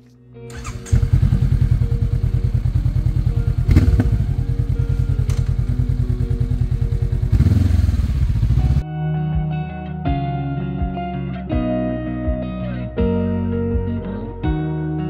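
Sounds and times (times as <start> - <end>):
motorcycle engine starting and idling: 0.5 - 8.8.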